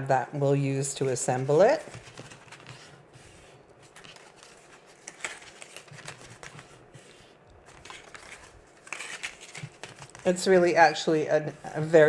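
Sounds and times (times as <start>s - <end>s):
paper rustling: 1.1s - 10.4s.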